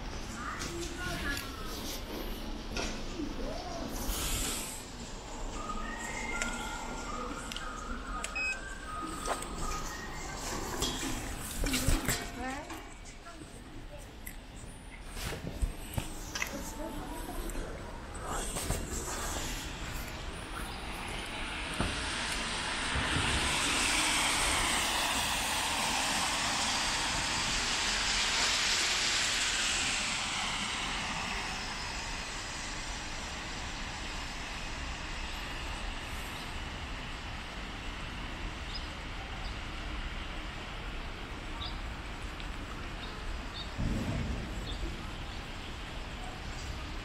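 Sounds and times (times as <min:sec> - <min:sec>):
street hum: 0:00.0 - 0:47.0
tyres hissing on wet road: 0:00.1 - 0:07.4, 0:15.2 - 0:47.0
steady rain: 0:19.4 - 0:47.0.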